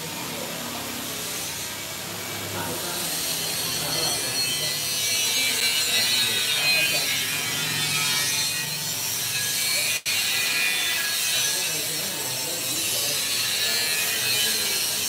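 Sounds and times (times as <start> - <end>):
mixing machine running: 6.6 - 9.9.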